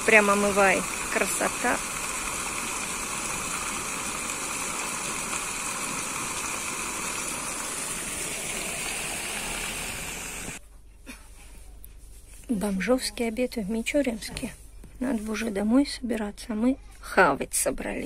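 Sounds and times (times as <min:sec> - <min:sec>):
fountain water splashing: 0:00.0 - 0:10.6.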